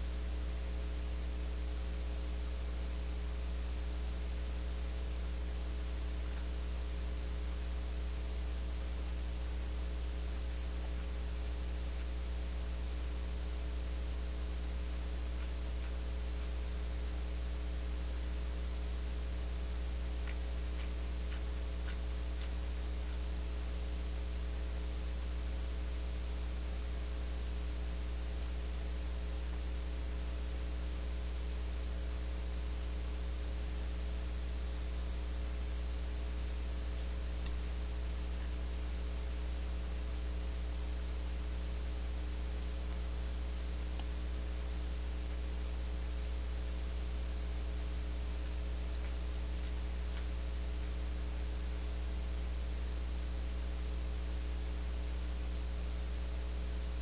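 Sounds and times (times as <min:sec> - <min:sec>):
electrical mains hum: 0:00.0 - 0:57.0
faint ticks: 0:06.2 - 0:07.8, 0:13.5 - 0:17.2, 0:19.3 - 0:24.3, 0:36.2 - 0:40.4, 0:42.6 - 0:46.2, 0:47.6 - 0:51.6.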